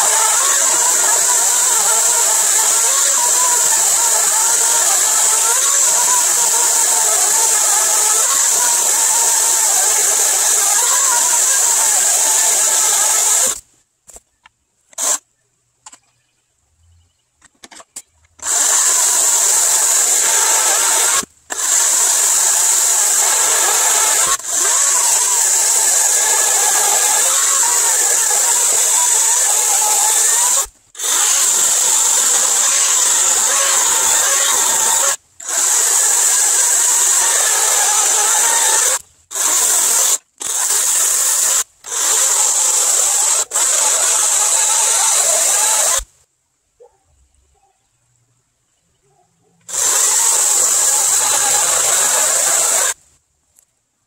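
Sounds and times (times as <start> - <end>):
chainsaw cutting log: 0.0 - 13.6, 18.4 - 46.1, 49.7 - 53.0.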